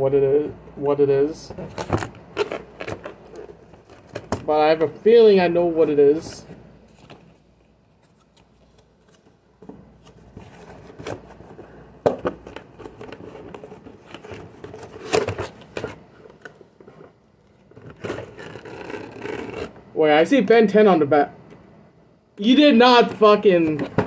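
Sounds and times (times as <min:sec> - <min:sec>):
cardboard scraping and rustling: 0:12.3 - 0:19.8.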